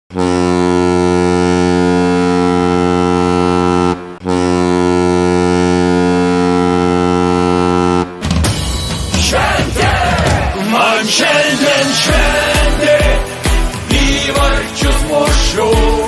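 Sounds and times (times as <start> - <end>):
goal horn blasts: 0.1 - 8.2.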